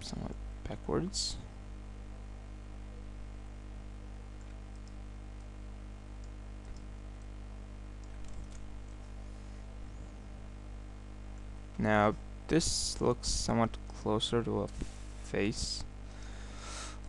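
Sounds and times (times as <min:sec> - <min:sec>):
low electrical hum: 0:00.0 - 0:17.0
keyboard and mouse clicks: 0:08.0 - 0:08.6.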